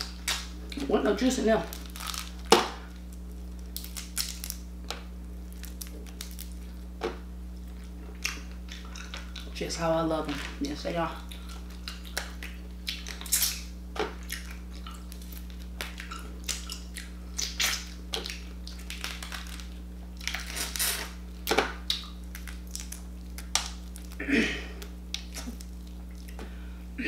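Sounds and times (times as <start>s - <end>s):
wet sucking and chewing: 11.2s - 19.4s, 24.8s - 26.6s.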